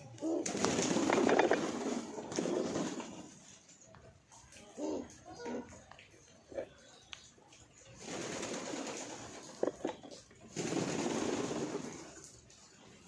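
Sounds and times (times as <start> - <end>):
pigeons cooing: 0.0 - 3.6, 4.8 - 5.7.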